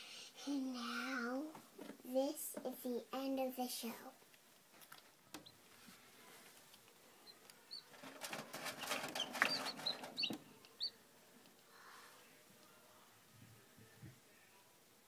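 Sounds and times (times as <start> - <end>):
chick peeping: 7.2 - 11.0
rustling and scratching: 7.8 - 10.6.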